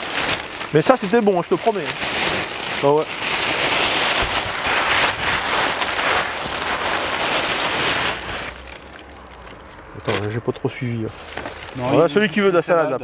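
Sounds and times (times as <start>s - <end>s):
plastic bags rustling: 0.0s - 13.0s.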